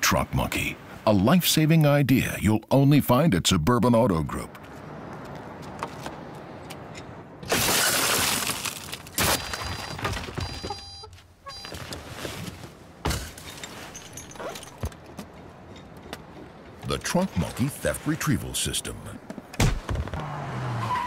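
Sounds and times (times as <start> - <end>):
car window glass shattering: 7.4 - 10.6
glass shards tinkling: 13.4 - 14.8.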